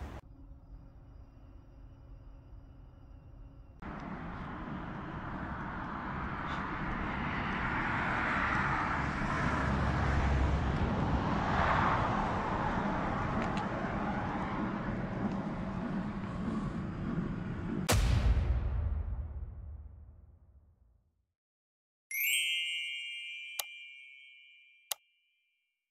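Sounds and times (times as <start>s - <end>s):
truck diesel engine passing: 0.0s - 0.2s, 3.8s - 17.9s.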